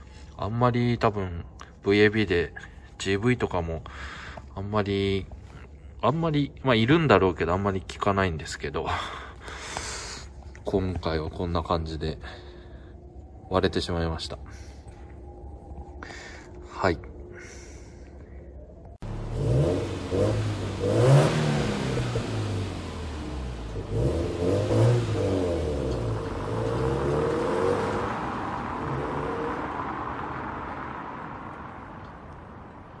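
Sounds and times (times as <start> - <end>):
car engine revving: 19.0 - 32.3.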